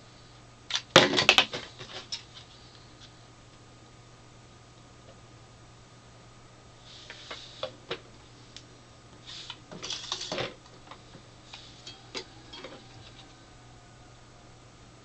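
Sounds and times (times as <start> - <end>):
metallic clinks and scraping: 11.6 - 13.3.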